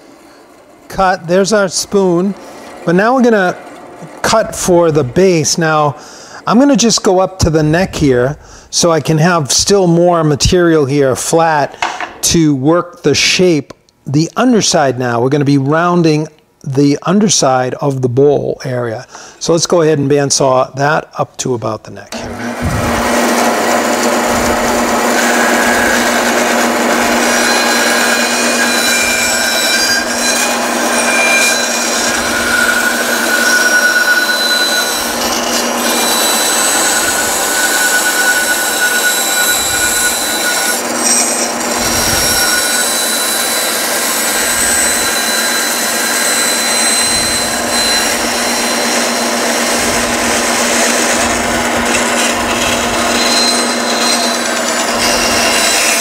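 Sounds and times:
bandsaw motor hum: 0.0s - 6.7s, 22.1s - 56.0s
faint whistling from blade: 32.5s - 35.0s.

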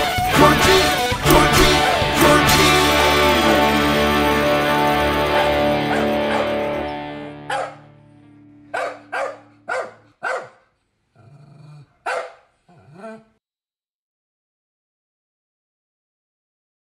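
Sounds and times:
rock song final chord: 0.0s - 9.7s
dog barking: 5.4s - 6.6s, 7.5s - 7.8s, 8.7s - 10.7s, 12.0s - 13.3s.

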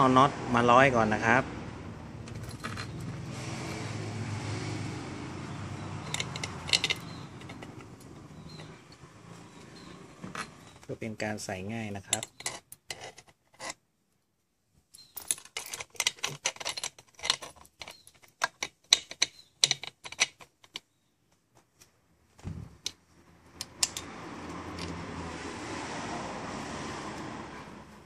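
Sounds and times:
metal bolts clinking: 2.2s - 3.8s, 5.8s - 10.9s, 15.0s - 20.9s.

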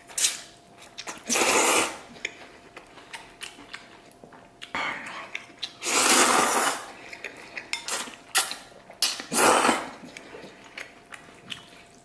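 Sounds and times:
person slurping noodles: 1.3s - 2.1s, 5.8s - 6.9s, 9.3s - 10.0s
chewing: 2.0s - 12.0s.

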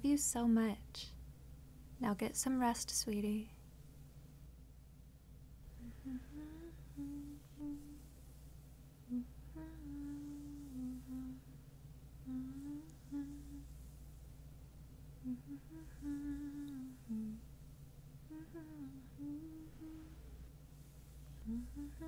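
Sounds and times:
woman humming a lullaby: 5.8s - 8.1s, 9.1s - 11.6s, 12.2s - 13.8s, 15.2s - 17.5s, 18.2s - 20.3s, 21.3s - 22.0s.

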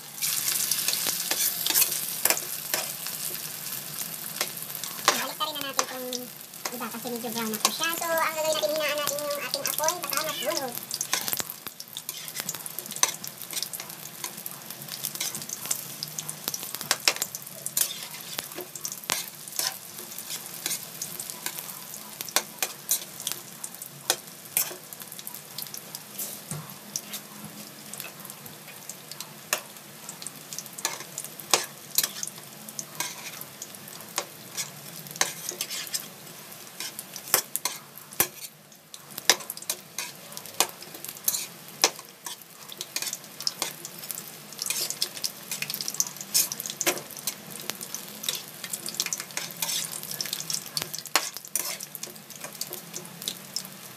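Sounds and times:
spring rolls sizzling in oil: 0.0s - 53.9s
tongs clicking against pan: 39.3s - 43.8s.

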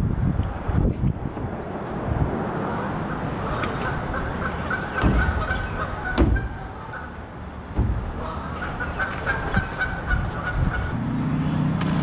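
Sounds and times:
outdoor background noise: 0.0s - 12.0s
poultry calling: 2.7s - 7.3s, 8.0s - 11.0s
sharp knocks: 5.0s - 6.8s, 7.7s - 8.5s.

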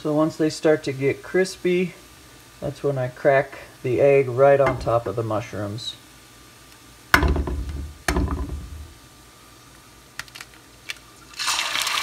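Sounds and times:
egg knocking on pan rim: 4.7s - 5.1s, 7.2s - 8.8s
egg sizzling in hot oil: 9.8s - 12.0s.

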